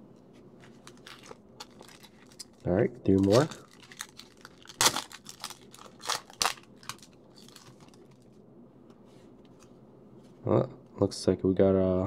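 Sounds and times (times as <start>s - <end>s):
foil wrapper crinkling: 0.6s - 8.2s.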